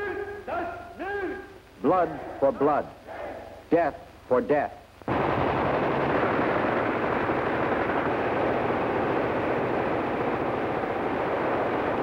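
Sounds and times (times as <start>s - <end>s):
gunfire and explosions din: 5.1s - 12.0s.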